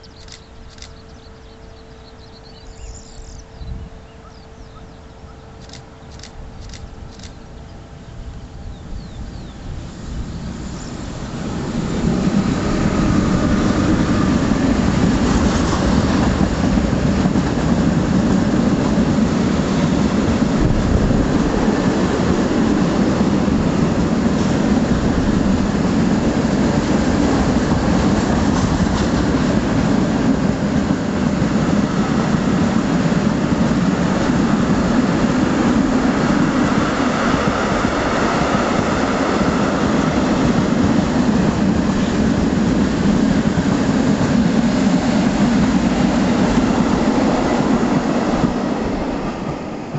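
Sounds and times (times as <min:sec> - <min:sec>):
freight train wheels on rails: 0:00.0 - 0:49.9.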